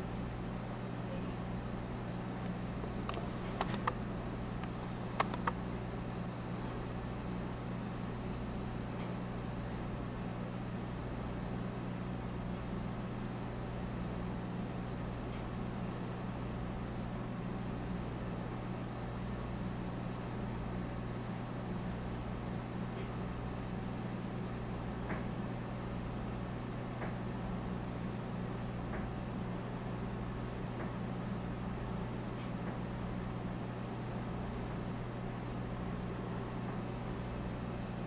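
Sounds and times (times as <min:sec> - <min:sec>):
aquarium equipment humming: 0:00.0 - 0:38.0.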